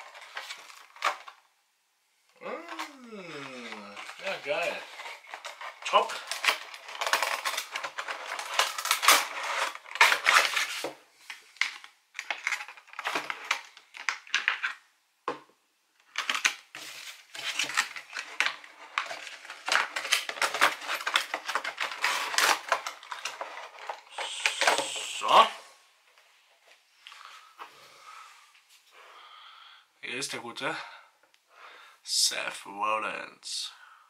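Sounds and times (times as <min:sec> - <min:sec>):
packaging crinkling and rustling: 0:00.0 - 0:01.5, 0:02.8 - 0:14.9, 0:16.0 - 0:25.5.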